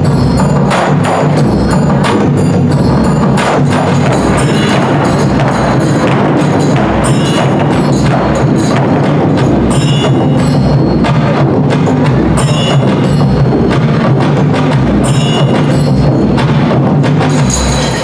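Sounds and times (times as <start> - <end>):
drums: 0.0 - 18.0
wood block rhythm: 0.0 - 18.0
ringing metal stroke: 2.2 - 11.3, 12.4 - 13.5, 15.0 - 16.4, 17.2 - 18.0.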